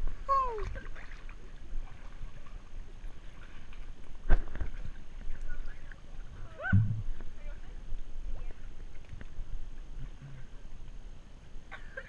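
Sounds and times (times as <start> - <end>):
pool water sloshing and lapping: 0.0 - 12.0
sharp thump: 6.7 - 7.2.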